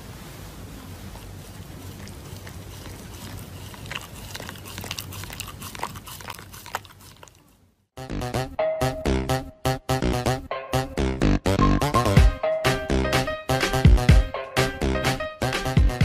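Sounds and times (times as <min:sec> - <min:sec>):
steady background hiss: 0:00.0 - 0:02.8
dog chewing crunchy food: 0:00.8 - 0:07.7.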